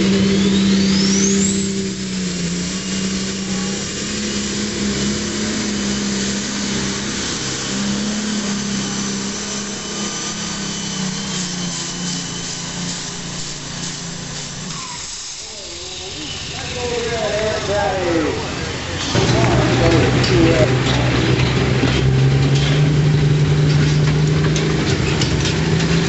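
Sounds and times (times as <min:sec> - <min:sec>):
thin high whine: 0:00.0 - 0:20.7
heavy tractor engine drone: 0:00.0 - 0:26.0.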